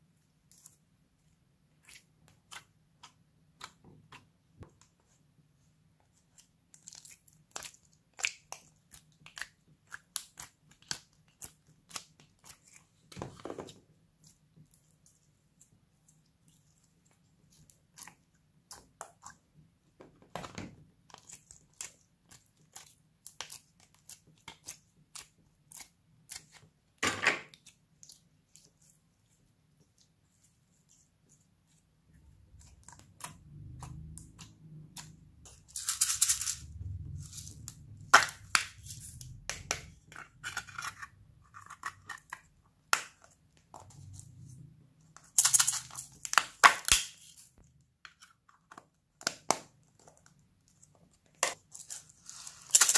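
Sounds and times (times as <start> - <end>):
hands squishing slime: 0.4 - 5.2, 6.0 - 20.0, 21.0 - 35.7.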